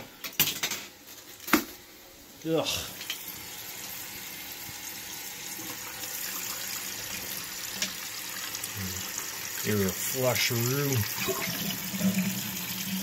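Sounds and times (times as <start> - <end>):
water filling toilet tank: 2.9 - 13.0
water pouring into overflow pipe: 3.0 - 13.0.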